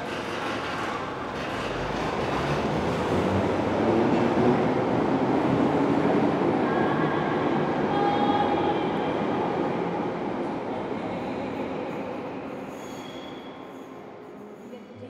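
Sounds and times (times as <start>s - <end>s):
train wheels rumbling: 0.0s - 10.0s.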